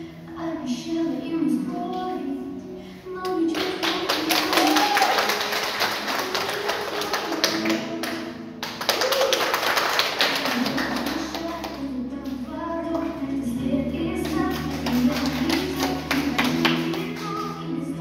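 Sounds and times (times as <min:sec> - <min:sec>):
music: 0:00.0 - 0:18.0
audience applauding: 0:03.6 - 0:11.6.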